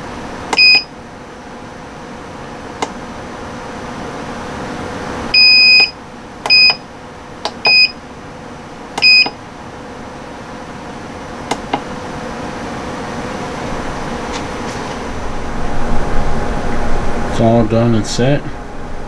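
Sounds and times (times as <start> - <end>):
control panel beeps: 0.5 - 0.9, 5.4 - 6.8, 7.5 - 8.0, 9.0 - 9.4.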